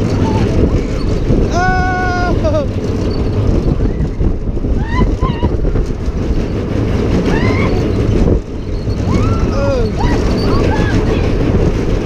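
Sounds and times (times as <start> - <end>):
wind rushing over microphone: 0.0 - 12.0
riders yelling: 1.5 - 2.7.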